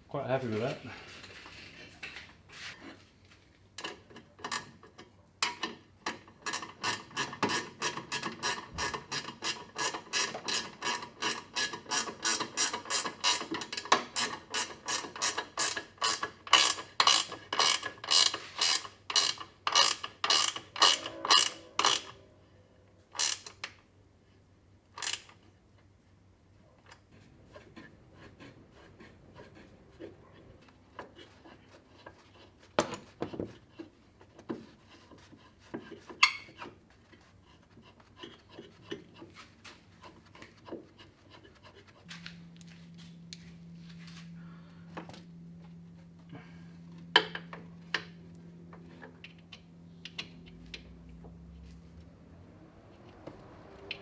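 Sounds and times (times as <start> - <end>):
ratchet wrench clicking: 6.5 - 22.1, 23.1 - 23.7, 25.0 - 25.4.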